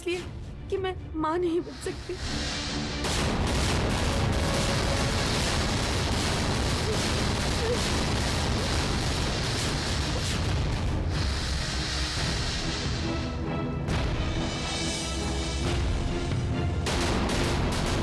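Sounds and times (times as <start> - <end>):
loud crackling rumble: 2.9 - 13.2.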